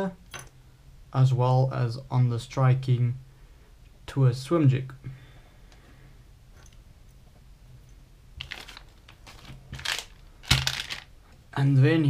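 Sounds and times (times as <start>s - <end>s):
plastic packets rustling and tapping: 8.4s - 11.1s.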